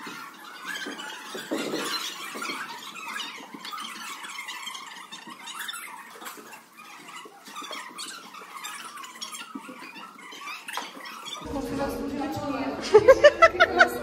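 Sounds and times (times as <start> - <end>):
high squeals: 0.0 - 13.2
girls chattering: 11.4 - 14.0.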